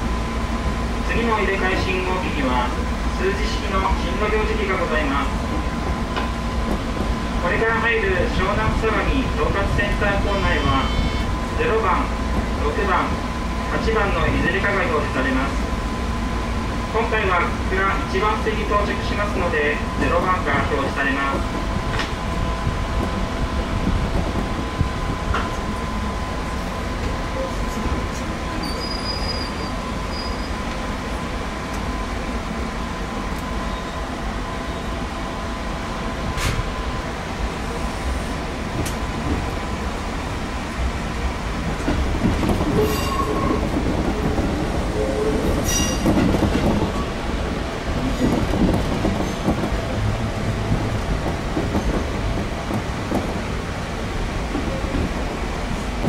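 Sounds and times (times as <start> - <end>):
train rumbling on rails: 0.0 - 56.0
wheel squeals: 28.6 - 30.6.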